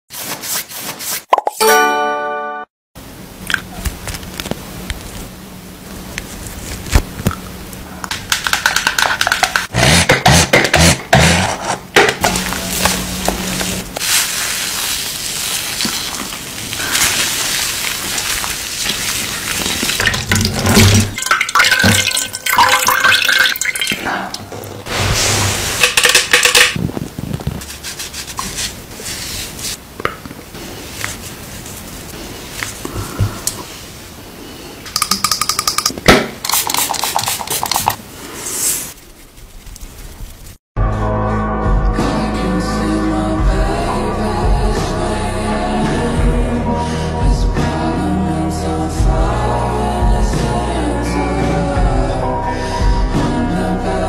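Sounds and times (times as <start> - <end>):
wet squishing of cleanser on skin: 12.7 - 20.6
water splashing: 14.0 - 25.8.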